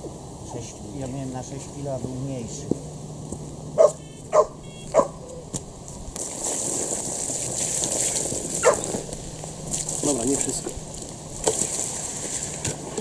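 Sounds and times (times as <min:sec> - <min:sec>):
steady hiss: 0:00.0 - 0:03.7
dog barking: 0:03.8 - 0:05.2, 0:08.6 - 0:08.8.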